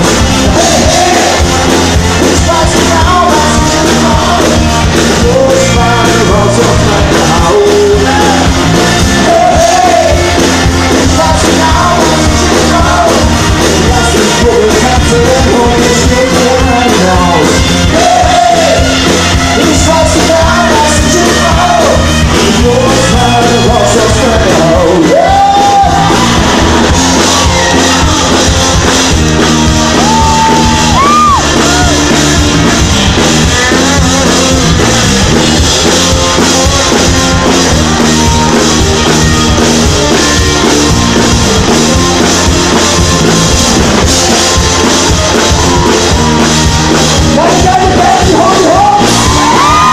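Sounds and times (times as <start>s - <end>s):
man singing and shouting: 0.0s - 26.6s, 33.4s - 38.6s, 47.0s - 49.9s
live rock band playing: 0.0s - 49.9s.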